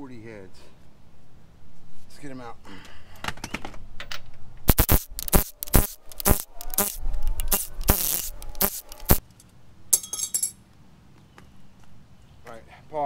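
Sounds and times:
impact wrench running: 4.7 - 9.2.

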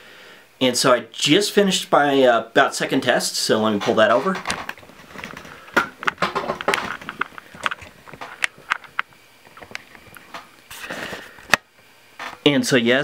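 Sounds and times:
equipment clicking and knocking on desk: 3.8 - 10.5.

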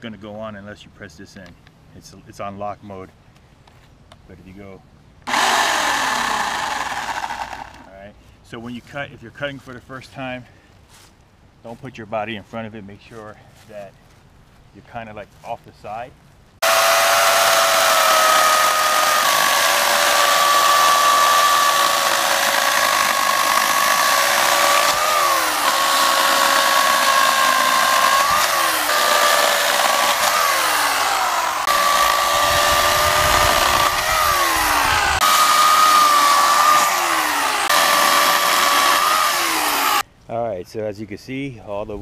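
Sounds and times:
electric chainsaw cutting log: 5.3 - 7.9, 16.6 - 40.0.

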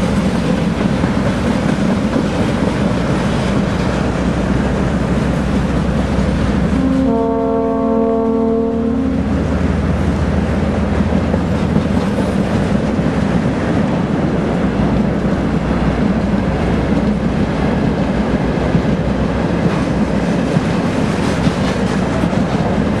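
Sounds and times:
diesel locomotive engine running: 0.0 - 23.0.

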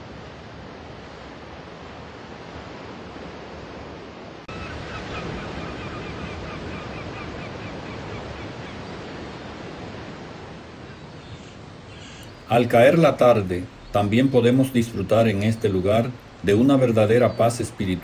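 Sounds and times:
sea surf on beach: 0.0 - 18.0
bird chirping rapidly: 11.2 - 18.0.

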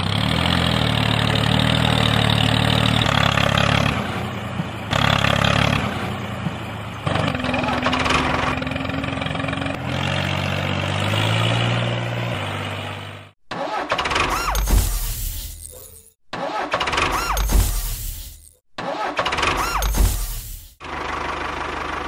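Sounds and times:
vehicle engine hum: 0.0 - 13.4, 20.8 - 22.0.

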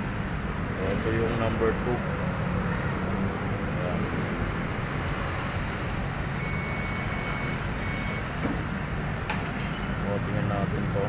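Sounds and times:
multimeter short beeps: 6.4 - 8.3.

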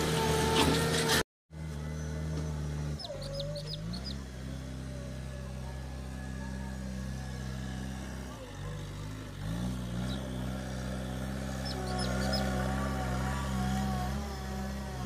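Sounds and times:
diesel engine running: 0.0 - 15.0
bird chirping: 1.9 - 4.3, 11.6 - 12.6.

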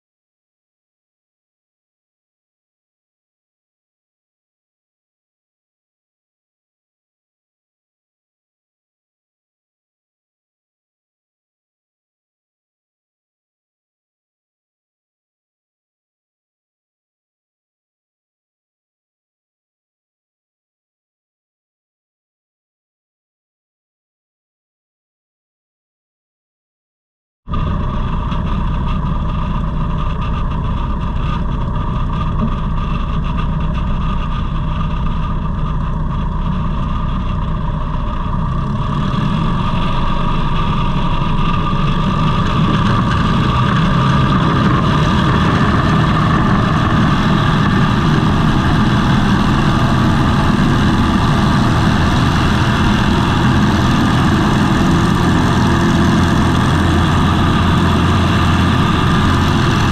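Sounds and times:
light aircraft engine and propeller: 27.5 - 59.9.

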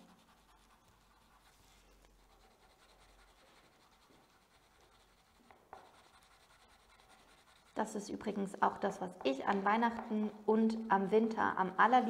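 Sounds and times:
pencil scribbling on paper: 0.0 - 9.7.

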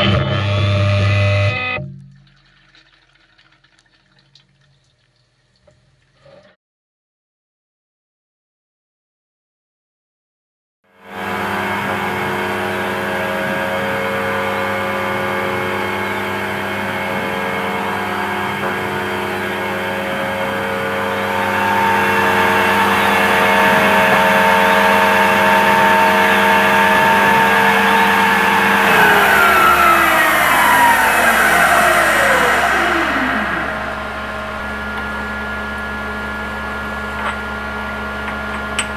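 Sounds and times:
milling machine spindle whine: 11.1 - 38.9.

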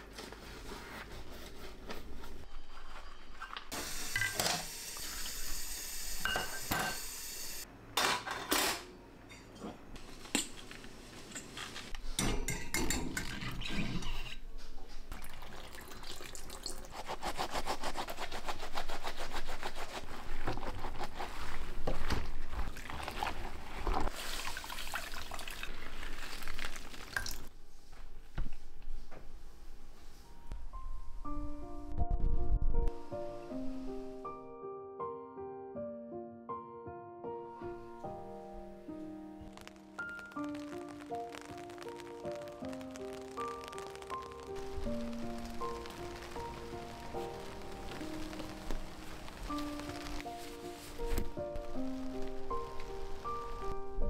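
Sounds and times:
tap water running: 3.8 - 7.2, 15.1 - 16.9, 22.6 - 27.5.

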